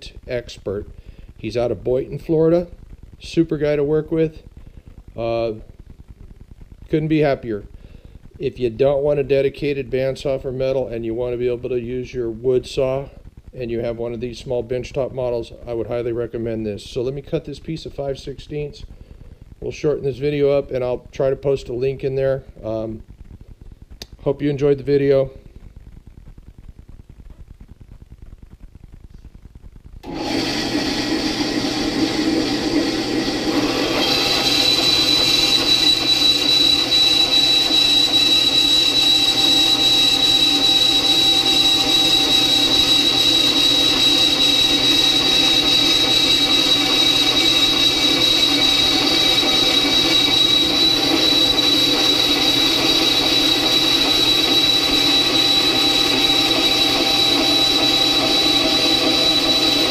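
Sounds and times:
bandsaw running: 30.0 - 59.9
high-pitched whine of blade cutting steel: 30.0 - 59.9.

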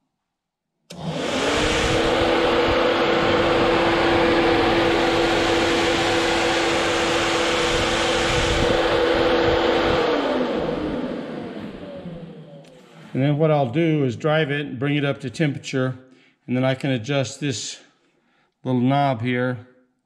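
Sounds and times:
electric fan humming: 0.9 - 14.0
rush of air: 1.2 - 10.8.

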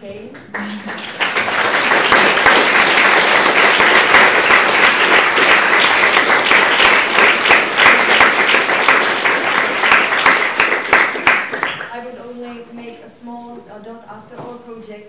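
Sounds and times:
audience applauding: 0.4 - 11.9.

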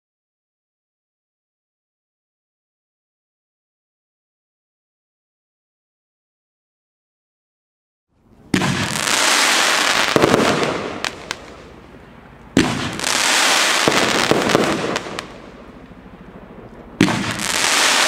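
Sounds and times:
firework hiss: 8.7 - 11.6, 12.6 - 15.6, 17.0 - 18.0
firework launch thumps: 17.0 - 17.7.

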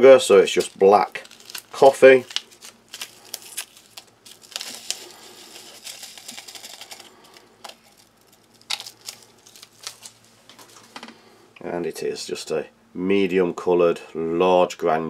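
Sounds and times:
packet crinkling: 0.3 - 10.9.

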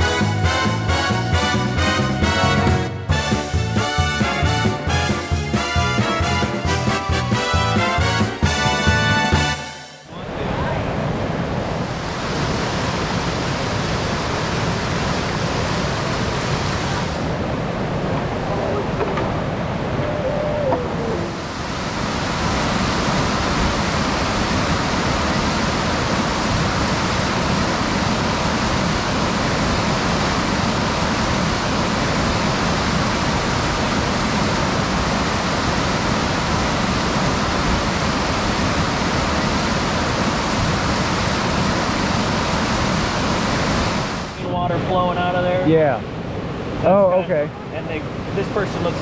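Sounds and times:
whitewater rushing through rapid: 10.1 - 49.0.

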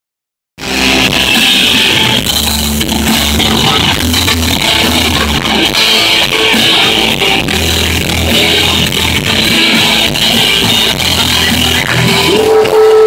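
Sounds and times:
drum kit beat: 0.6 - 13.0
electric guitars: 0.6 - 13.0.

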